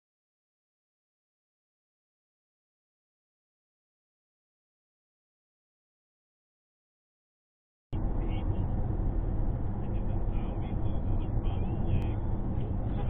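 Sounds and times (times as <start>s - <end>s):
car road and engine noise: 8.0s - 13.0s.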